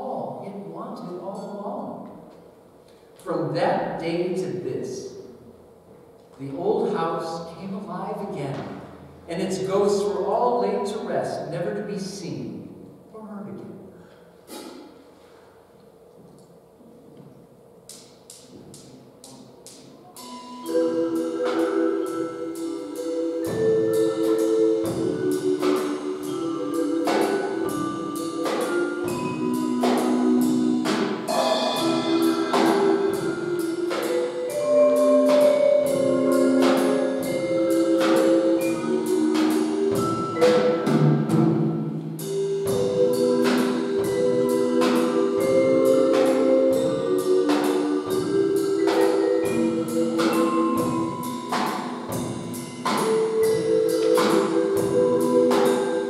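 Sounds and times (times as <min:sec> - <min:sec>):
drum kit beat: 0:17.8 - 0:56.0
keyboard notes: 0:17.9 - 0:56.0
mallet instrument melody: 0:19.6 - 0:56.0.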